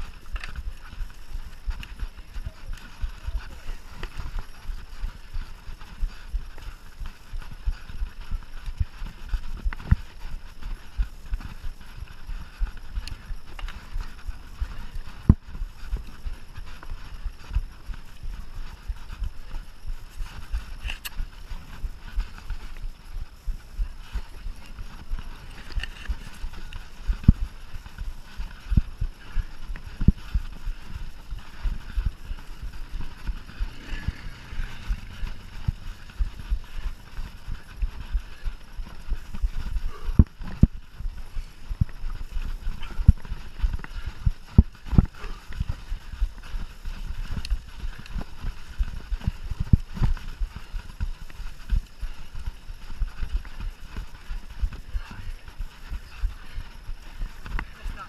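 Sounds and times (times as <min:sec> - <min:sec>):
low rumble: 0:22.8 - 0:42.0
bike rattling over bumps: 0:30.6 - 0:45.7.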